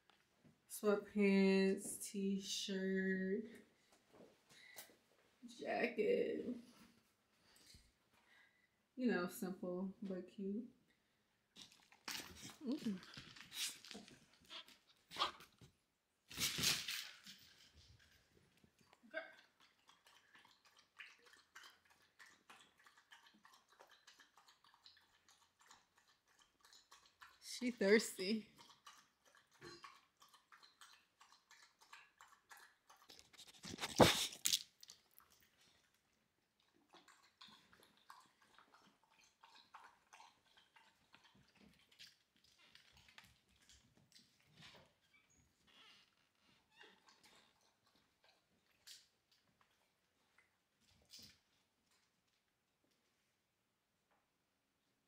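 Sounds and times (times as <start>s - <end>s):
dog lapping water: 18.6s - 44.7s.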